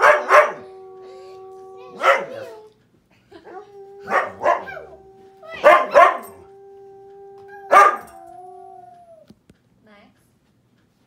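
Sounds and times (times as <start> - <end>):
dog barking: 0.0 - 0.7, 1.9 - 2.5, 4.0 - 6.5, 7.7 - 8.2.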